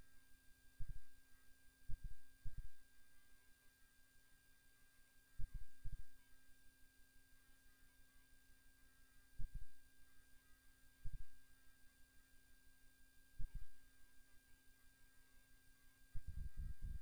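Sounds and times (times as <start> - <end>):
low hum: 0.0 - 3.3, 16.1 - 17.0.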